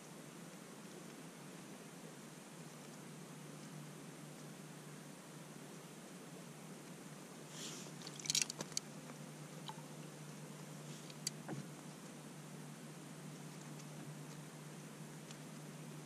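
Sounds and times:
low steady hum: 0.0 - 16.0
faint crackling clicks and crunches: 8.0 - 9.8, 10.6 - 12.0, 13.3 - 15.5.

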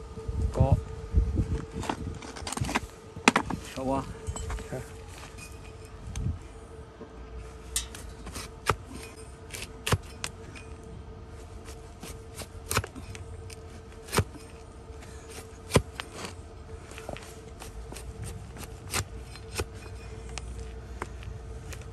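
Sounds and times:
hoof knife slicing hoof: 11.6 - 13.2, 14.0 - 14.6, 15.3 - 16.4, 17.6 - 19.9.

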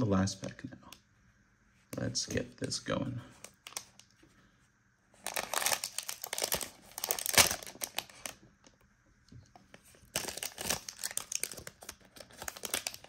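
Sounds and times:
plastic wrapper crinkling and tearing: 3.4 - 4.1, 5.2 - 8.4, 9.8 - 13.0.

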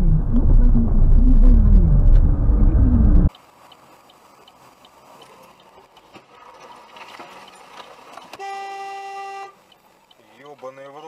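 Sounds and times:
quiet traffic noise: 0.0 - 11.0
car horn blast: 8.4 - 9.6.

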